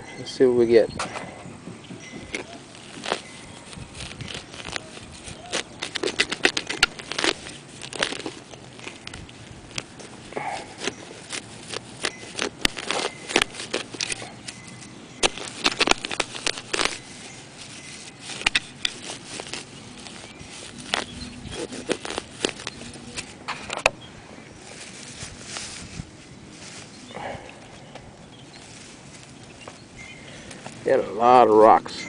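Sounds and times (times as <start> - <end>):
hand digger cutting into turf: 2.3 - 23.9.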